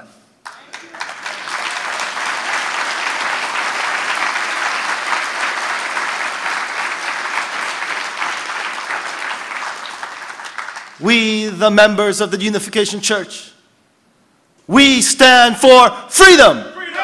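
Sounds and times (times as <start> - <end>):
audience applauding: 0.4 - 11.0.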